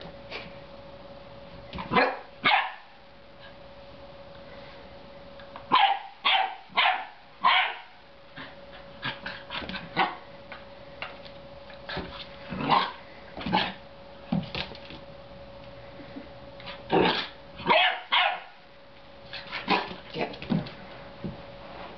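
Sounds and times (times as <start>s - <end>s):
puppy barking: 1.9s - 2.9s, 5.7s - 8.0s, 10.0s - 10.2s, 12.6s - 13.8s, 17.0s - 18.6s.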